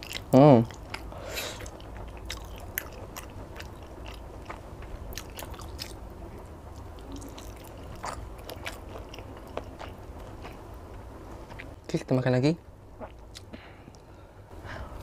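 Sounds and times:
person chewing food: 0:00.0 - 0:06.0, 0:06.7 - 0:11.8.

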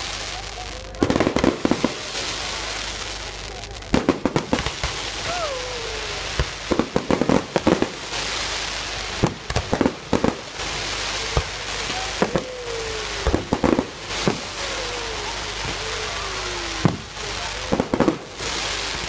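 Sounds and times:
firework bangs: 0:00.0 - 0:19.0
fireworks crackling: 0:00.0 - 0:19.0
firework whistles: 0:04.0 - 0:19.0.

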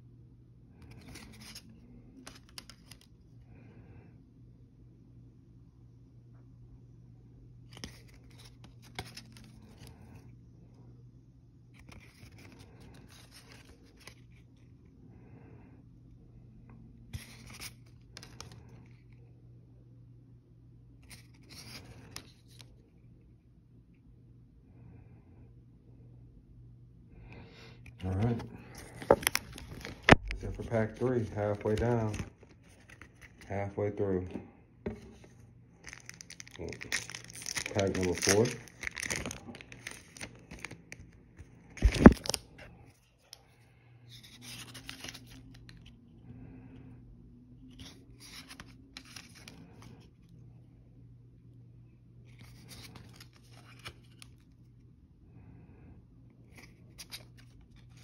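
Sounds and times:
cards scraping together: 0:00.8 - 0:03.1, 0:07.7 - 0:10.1, 0:11.8 - 0:14.4, 0:17.1 - 0:19.1, 0:21.0 - 0:22.7, 0:27.9 - 0:33.5, 0:34.9 - 0:42.5, 0:44.1 - 0:45.9, 0:47.7 - 0:50.0, 0:52.3 - 0:54.4
trading cards sliding: 0:00.9 - 0:03.1, 0:28.0 - 0:33.4.

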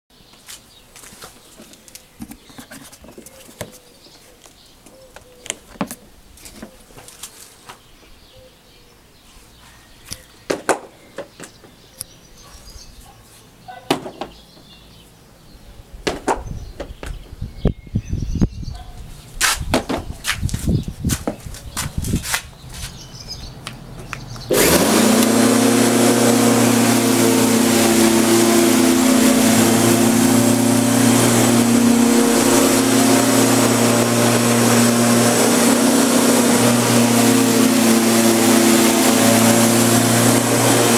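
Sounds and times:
lawn mower clicks and knocks: 0:01.0 - 0:03.8.

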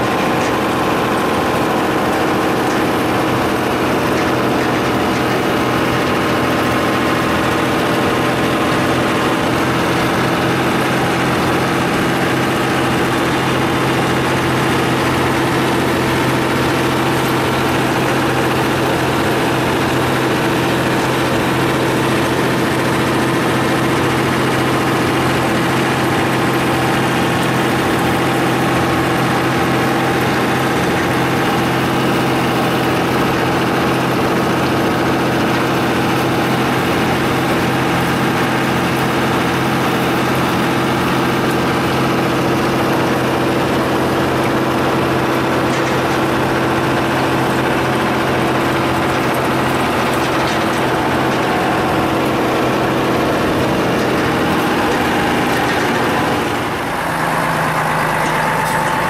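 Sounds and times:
truck engine running steadily: 0:00.0 - 0:59.0.

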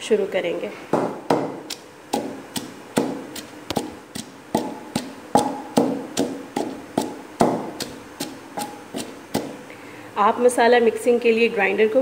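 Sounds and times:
wooden pestle pounding in stone mortar: 0:00.9 - 0:09.6.

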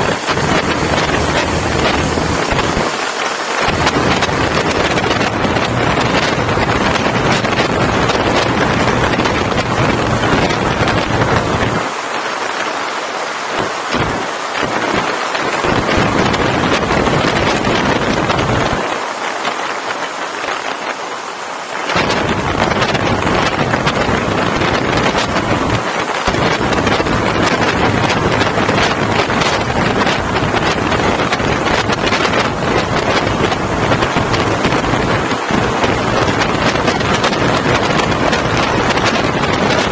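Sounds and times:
low rumble of motorcycle: 0:00.0 - 0:03.0, 0:03.6 - 0:11.8, 0:21.9 - 0:39.9
wind rushing over microphone: 0:00.0 - 0:39.9.

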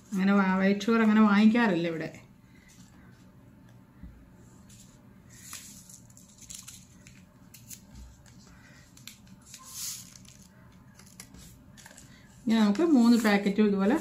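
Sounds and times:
paper sachets tearing: 0:05.4 - 0:07.9, 0:08.6 - 0:12.2.

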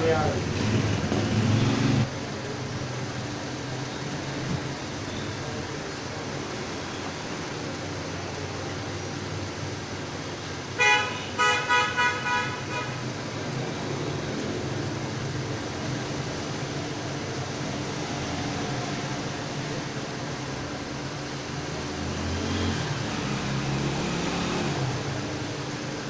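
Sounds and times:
horn honking: 0:10.8 - 0:13.0.

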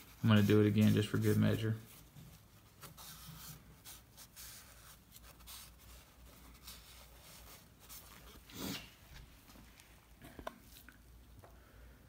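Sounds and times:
towel rubbing on metal: 0:00.0 - 0:09.0.

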